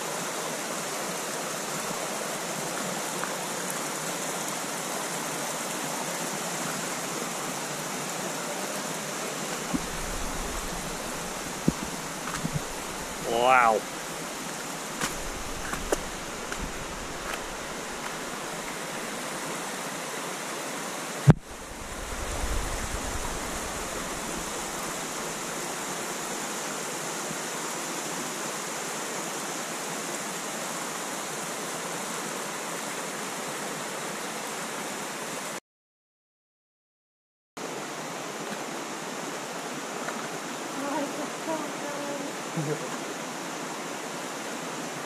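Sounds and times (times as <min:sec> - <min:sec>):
water rushing through rocky gorge: 0:00.0 - 0:35.6.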